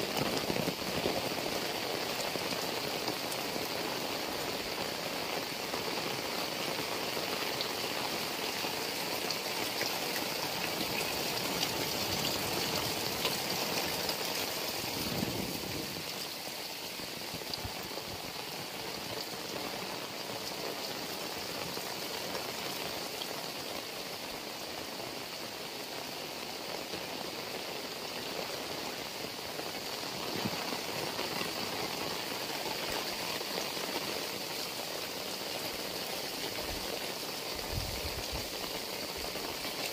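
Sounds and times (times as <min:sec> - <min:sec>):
heavy rain splashing: 0:00.0 - 0:39.9
water running off roof edges: 0:07.8 - 0:18.4.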